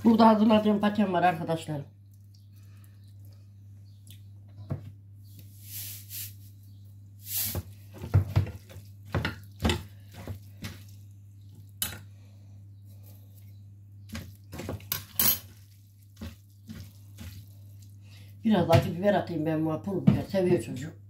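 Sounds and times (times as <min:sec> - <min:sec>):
steady low hum: 0:00.0 - 0:21.0
utensils and dishes clinking: 0:14.8 - 0:15.6.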